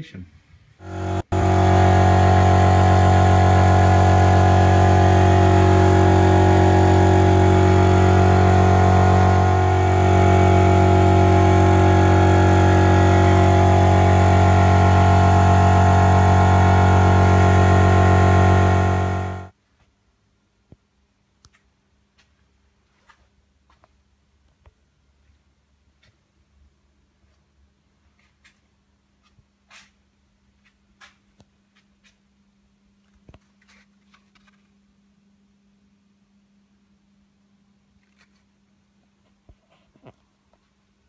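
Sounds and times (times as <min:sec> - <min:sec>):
synthesizer drone: 0:00.8 - 0:19.5.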